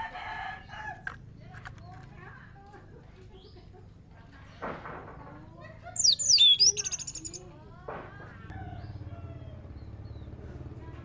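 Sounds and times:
thrush singing whistles: 0:06.0 - 0:07.4.

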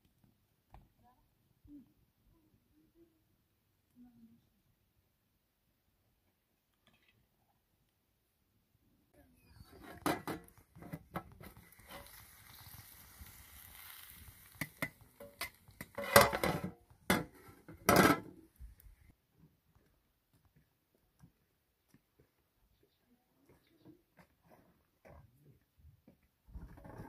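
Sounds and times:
metal pot lid clattering: 0:14.7 - 0:18.3.

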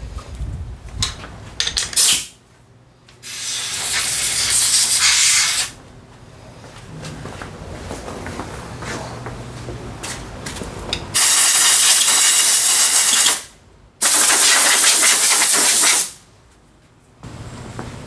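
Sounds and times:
compressed air blow gun hissing: 0:03.2 - 0:05.7.

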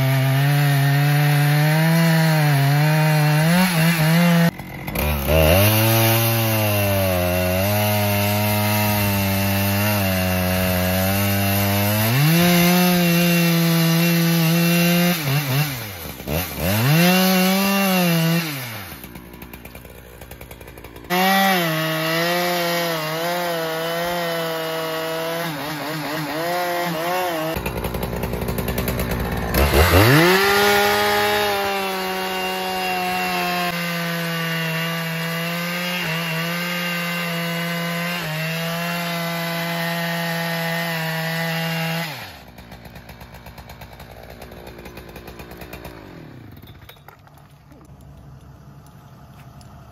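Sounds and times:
chainsaw cutting wood: 0:00.0 - 0:49.9.

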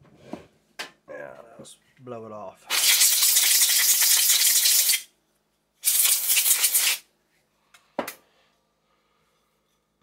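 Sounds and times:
compressed air blasts hissing: 0:02.7 - 0:05.0, 0:05.8 - 0:07.0.

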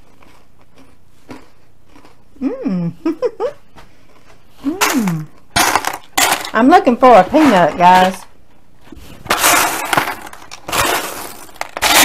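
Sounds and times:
woman humming with mouth full: 0:02.4 - 0:03.6.

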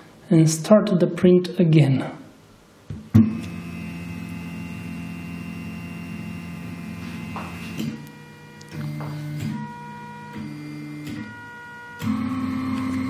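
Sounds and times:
stepper motors humming: 0:03.2 - 0:13.0.

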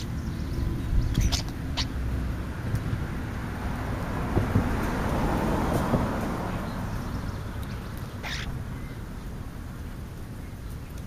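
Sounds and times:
car passing: 0:00.0 - 0:10.4.

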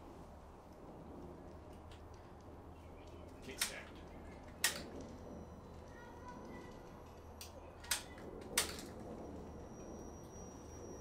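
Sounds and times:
low steady hum: 0:00.0 - 0:11.0
sharp clicks: 0:00.6 - 0:05.2.

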